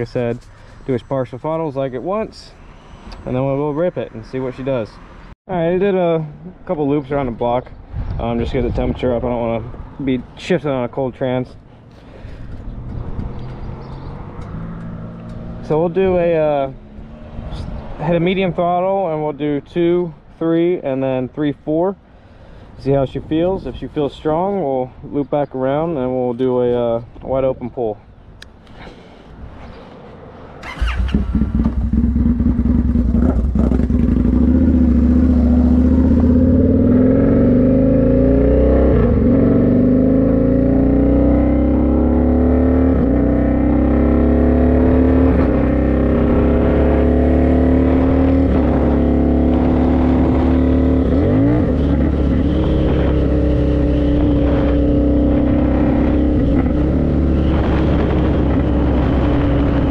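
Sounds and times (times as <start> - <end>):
motorcycle engine accelerating: 30.6 - 59.9.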